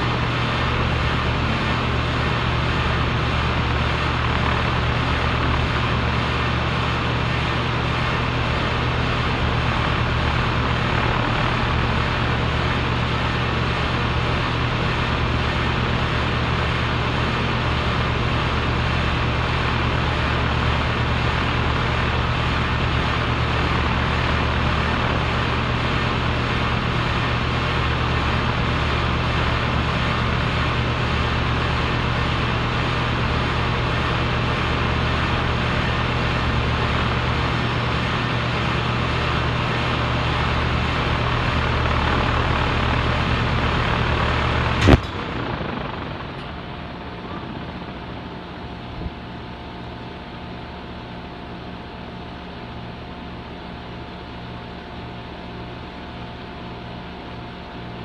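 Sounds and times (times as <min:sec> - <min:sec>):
compressor humming: 0:00.0 - 0:28.5, 0:37.6 - 0:52.6.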